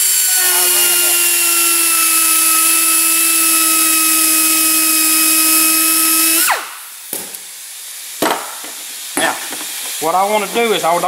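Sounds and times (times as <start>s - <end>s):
die grinder grinding plastic: 0.0s - 6.4s.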